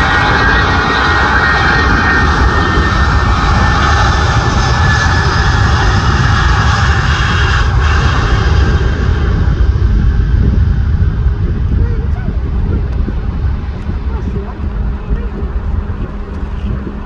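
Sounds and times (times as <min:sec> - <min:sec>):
heavy low rumble: 0:00.0 - 0:17.0
high engine whine: 0:00.0 - 0:17.0
jet engines roaring: 0:00.0 - 0:17.0.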